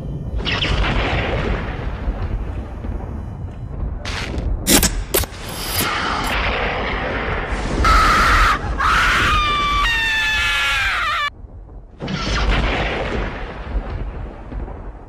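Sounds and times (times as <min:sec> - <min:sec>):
low boom: 0:00.0 - 0:05.1, 0:11.3 - 0:15.0
steady low rumble: 0:00.0 - 0:07.9, 0:11.3 - 0:15.0
shrill screams: 0:07.8 - 0:11.3.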